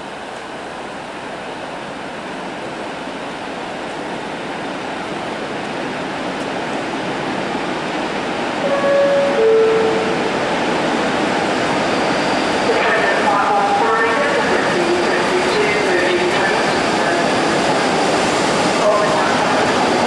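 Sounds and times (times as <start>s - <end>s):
diesel locomotive running: 0.0s - 20.0s
two-tone train horn: 8.6s - 10.3s.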